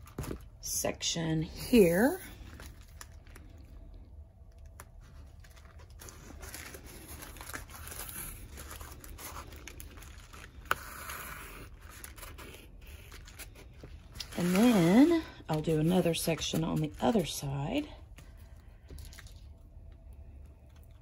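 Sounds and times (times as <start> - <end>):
tape peeling and crinkling: 4.4 - 19.6.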